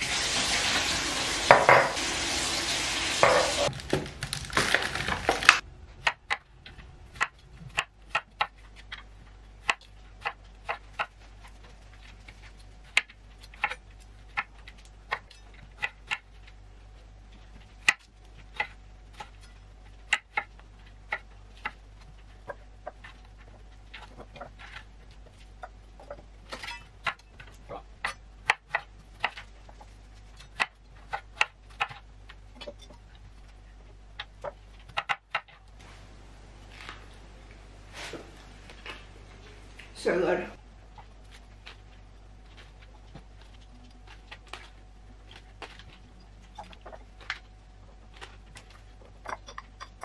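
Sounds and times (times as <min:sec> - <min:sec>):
water running from tap: 0:00.0 - 0:03.7.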